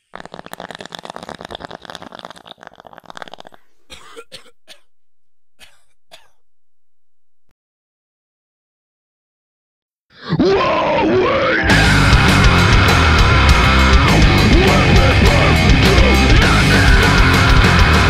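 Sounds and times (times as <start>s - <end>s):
harsh rasping crackle: 0.0s - 7.4s.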